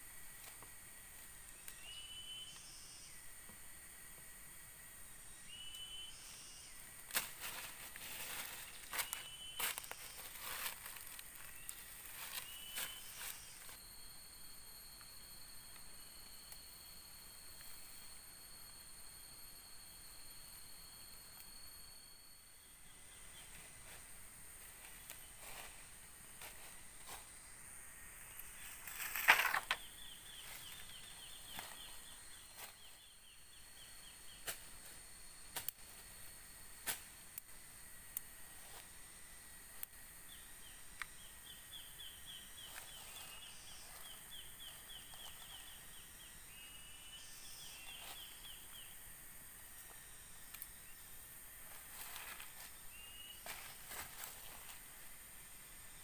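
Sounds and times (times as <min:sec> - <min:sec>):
steady high-pitched whine: 0:00.0 - 0:56.0
faint high chirping: 0:01.4 - 0:03.5, 0:04.9 - 0:36.6, 0:40.2 - 0:49.2, 0:49.8 - 0:54.8
footsteps crunching on dry leaves: 0:07.1 - 0:13.8, 0:51.6 - 0:54.8.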